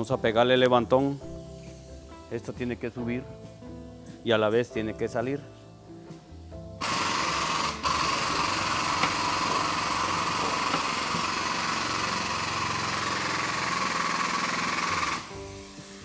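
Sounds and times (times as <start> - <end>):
hydraulic pump hissing drone: 1.0 - 4.6, 6.8 - 16.0.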